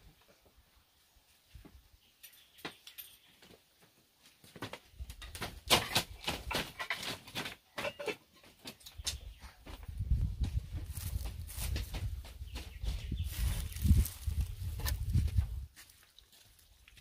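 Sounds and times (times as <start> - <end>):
toddler footsteps on woven mat: 8.4 - 17.0.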